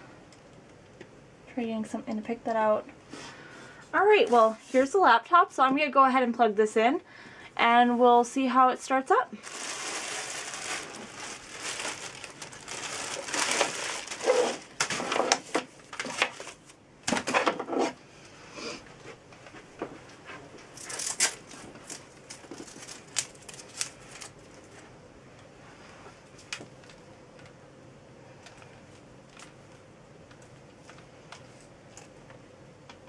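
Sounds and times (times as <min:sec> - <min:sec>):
packaging crinkling: 0:09.4 - 0:16.8, 0:20.8 - 0:24.8.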